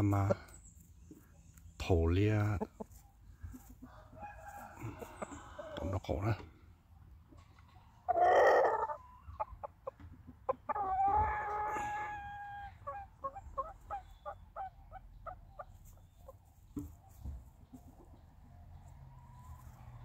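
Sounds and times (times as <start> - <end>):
rooster crowing: 3.9 - 5.8, 11.0 - 12.8
rooster clucking: 7.4 - 16.4.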